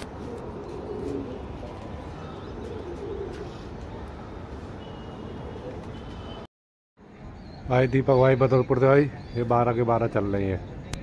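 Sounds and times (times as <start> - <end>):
pigeons cooing: 0.0 - 3.9.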